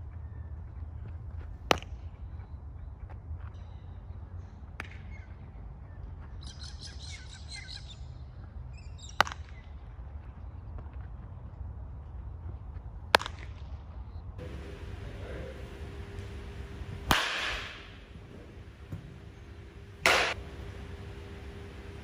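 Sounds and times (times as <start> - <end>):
birds chirping: 14.4 - 22.0
low steady rumble: 14.4 - 22.0.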